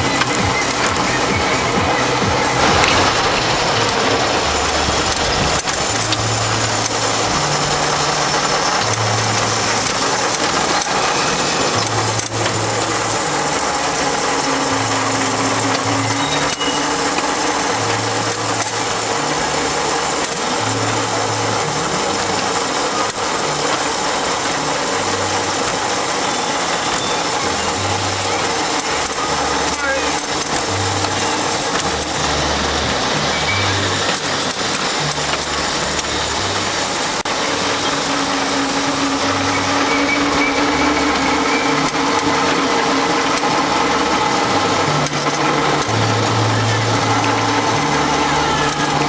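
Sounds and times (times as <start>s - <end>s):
miniature train rattling on track: 0.0s - 49.0s.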